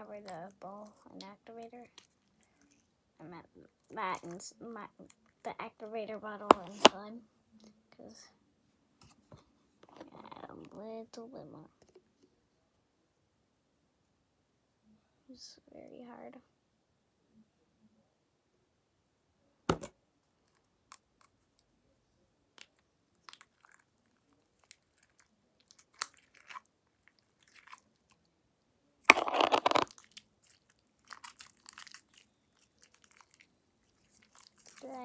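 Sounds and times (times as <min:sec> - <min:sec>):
wet crackling of slime: 0:22.6 - 0:28.3, 0:29.1 - 0:35.0.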